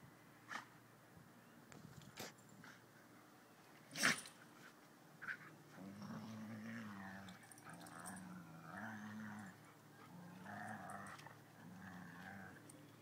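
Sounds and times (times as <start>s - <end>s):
dogs growling in play: 5.2s - 12.8s.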